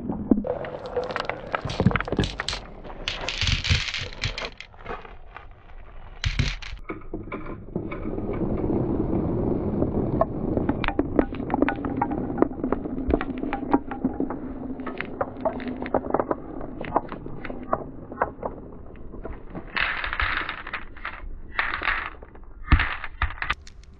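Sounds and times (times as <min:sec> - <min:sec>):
marbles rolling rumble: 0:00.4 - 0:06.8, 0:07.7 - 0:23.9
marbles clacking on track: 0:00.7 - 0:04.7, 0:06.2 - 0:06.8, 0:19.7 - 0:23.9.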